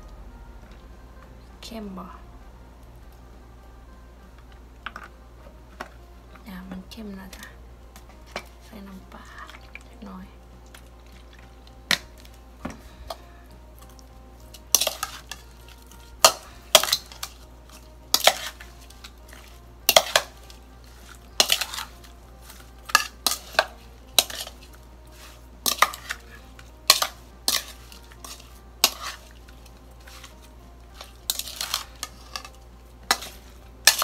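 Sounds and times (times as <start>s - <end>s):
spoon scraping a steel bowl: 14.6s - 34.0s.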